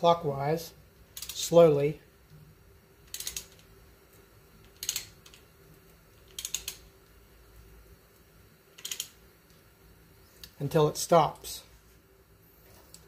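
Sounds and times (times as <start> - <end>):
ratchet wrench clicking: 1.2 - 1.5, 3.0 - 3.7, 4.6 - 5.4, 6.2 - 6.9, 8.8 - 9.2.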